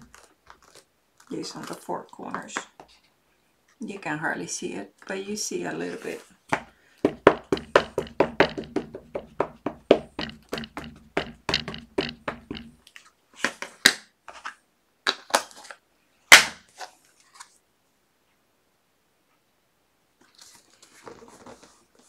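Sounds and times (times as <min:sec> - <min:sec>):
rubber stamp tapping ink pad: 0:06.5 - 0:12.8
knocks on tabletop: 0:06.6 - 0:12.8.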